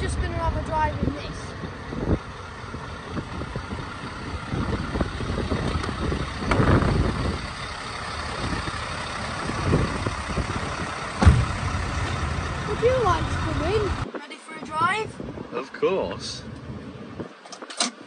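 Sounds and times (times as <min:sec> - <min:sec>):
truck engine idling: 0:00.0 - 0:14.1
knocks and thumps: 0:11.2 - 0:11.8.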